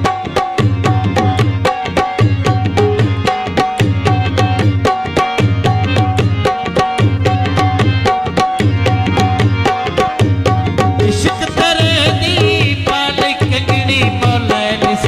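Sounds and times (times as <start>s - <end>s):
hand drum fast beat: 0.0s - 15.0s
sustained harmonium notes: 0.0s - 15.0s.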